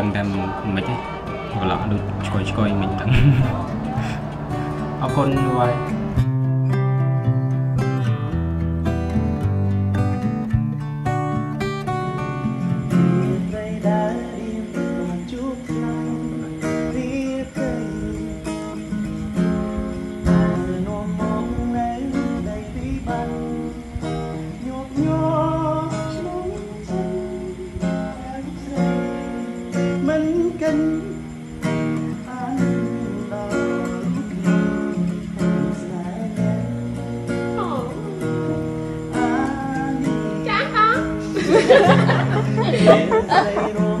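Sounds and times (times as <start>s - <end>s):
acoustic guitar strumming: 0.0s - 44.0s
person singing: 37.6s - 40.4s, 42.5s - 44.0s.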